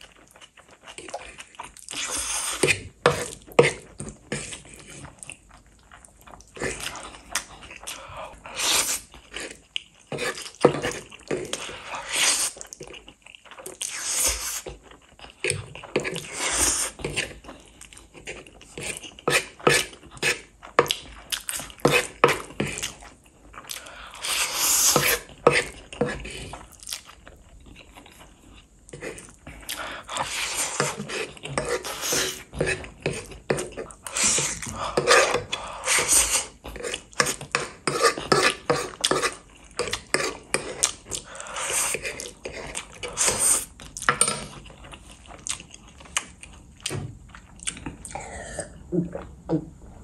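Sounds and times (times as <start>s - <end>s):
wet chewing: 0.0s - 48.4s
noodle slurping: 23.8s - 26.6s.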